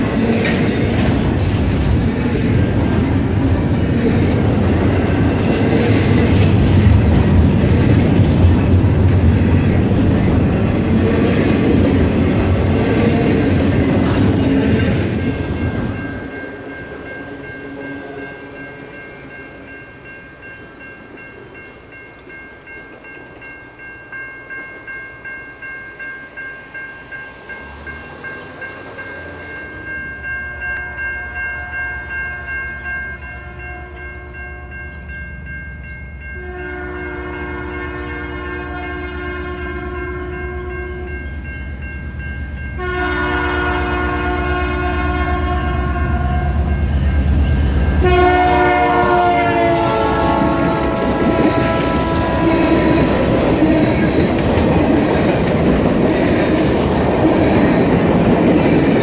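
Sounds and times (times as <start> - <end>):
train wheels clattering: 0.0 - 17.1, 47.9 - 59.0
distant train horn: 9.7 - 19.4, 27.6 - 35.1, 35.7 - 41.6, 42.6 - 55.0.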